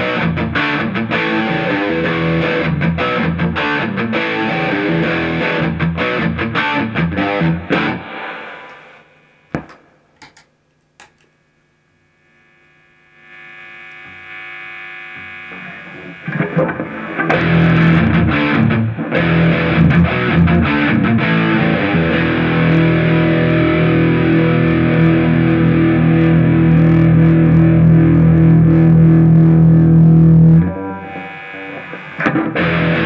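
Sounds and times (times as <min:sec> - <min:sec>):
distorted electric guitar riffing: 0:00.0 - 0:09.8, 0:12.2 - 0:33.0
guitar pedal clicks: 0:09.5 - 0:11.3.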